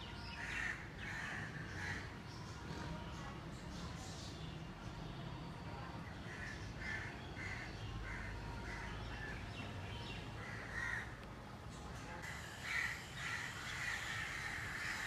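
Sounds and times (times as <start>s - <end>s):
crow cawing: 10.4s - 11.1s, 12.2s - 15.0s.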